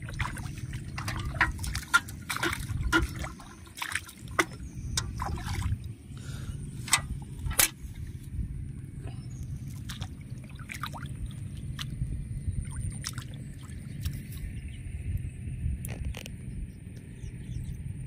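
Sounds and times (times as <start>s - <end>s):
footsteps splashing in muddy water: 0.0s - 6.0s, 6.8s - 8.2s, 9.6s - 14.6s.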